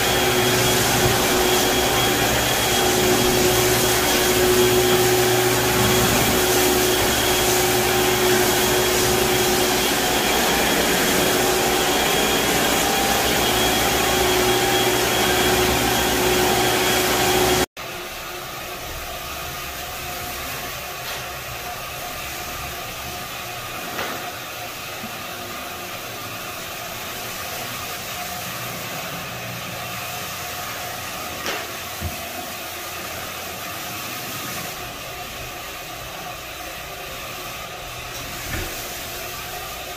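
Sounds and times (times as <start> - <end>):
vacuum motor running: 0.0 - 17.6
floor buffer humming: 0.0 - 39.9.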